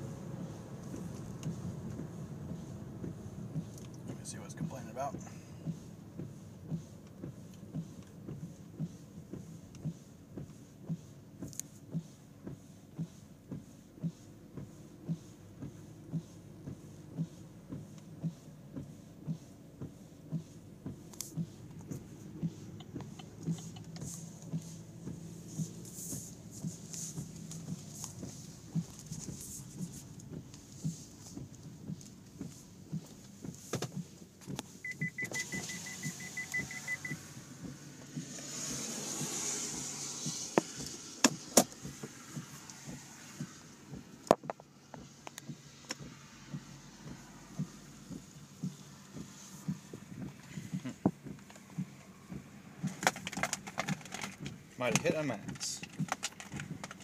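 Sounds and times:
low running hum: 0.0s - 52.9s
steady ticking: 18.1s - 29.1s
high rapid beeping: 34.8s - 37.2s.

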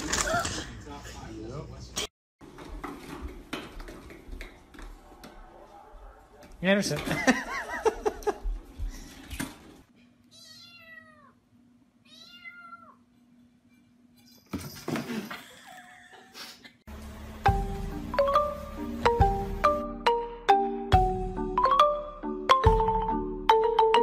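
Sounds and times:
kitten meowing: 10.3s - 11.3s, 12.1s - 13.0s.

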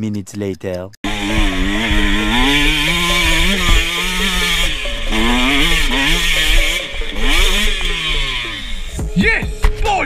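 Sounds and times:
dirt bike engine revving: 1.0s - 9.0s.

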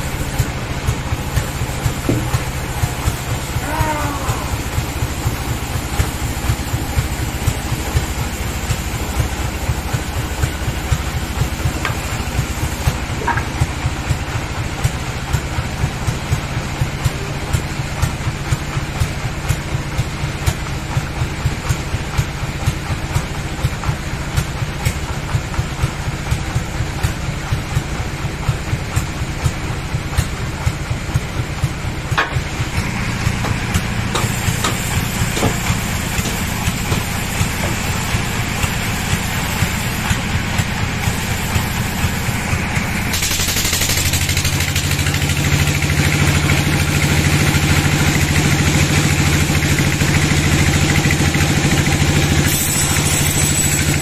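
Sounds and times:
bandsaw machinery pulsing: 0.0s - 18.2s, 30.0s - 54.0s.

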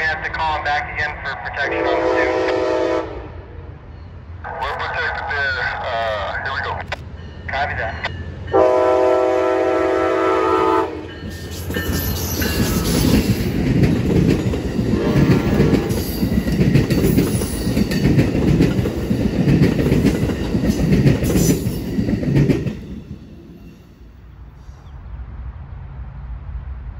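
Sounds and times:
locomotive horn chord: 1.6s - 3.4s, 8.5s - 11.1s, 14.9s - 15.9s
train wheels rumbling on rails: 5.3s - 25.0s.

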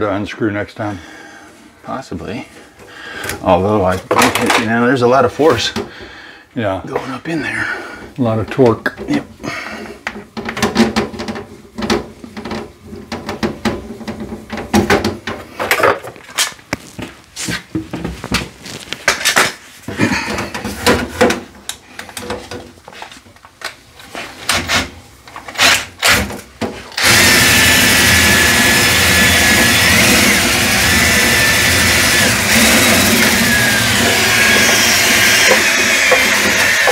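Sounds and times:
loud steady motor: 27.0s - 36.9s
rods rattling and scraping in pipe: 31.7s - 36.9s.

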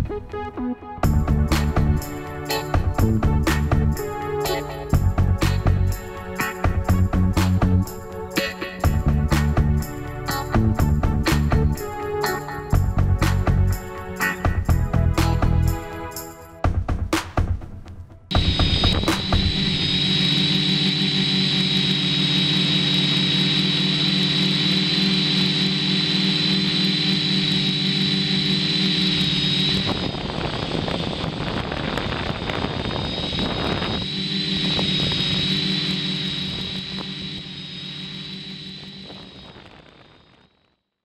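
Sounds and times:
rushing noise: 18.3s - 40.3s
drone motors buzzing: 18.3s - 40.4s.

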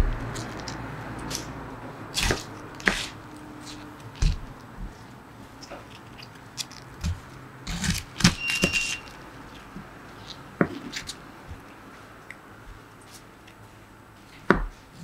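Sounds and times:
knife cutting cabbage: 2.2s - 5.0s, 6.6s - 9.1s.

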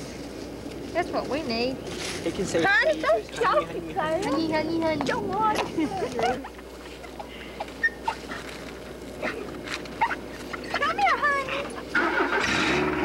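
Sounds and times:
small dog whimpering: 7.8s - 8.4s.

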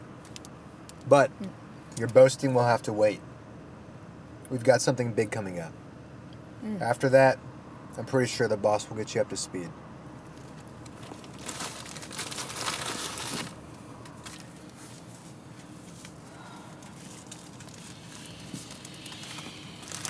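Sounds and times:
car cabin hum: 9.3s - 20.0s
paper packaging crinkling: 10.4s - 15.0s, 16.8s - 20.0s.

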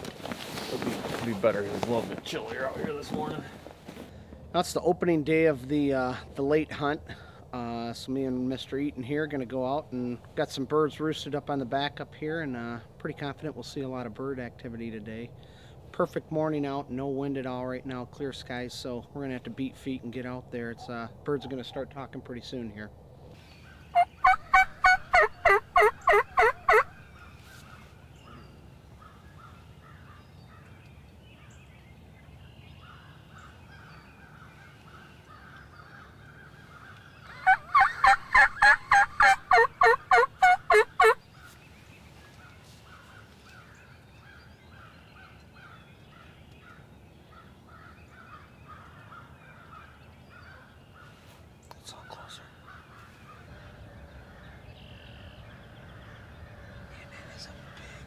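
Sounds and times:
turkey call harsh notes: 23.9s - 26.9s, 37.2s - 41.2s.

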